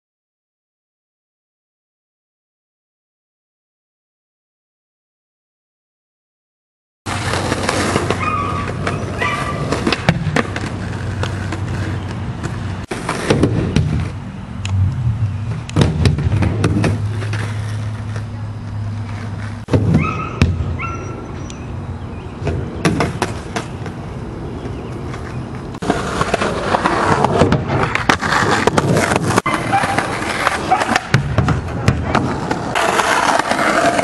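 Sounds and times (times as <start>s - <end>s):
skateboard wheels rolling on pavement: 7.1s - 34.0s
skateboard clacks and knocks: 25.1s - 34.0s.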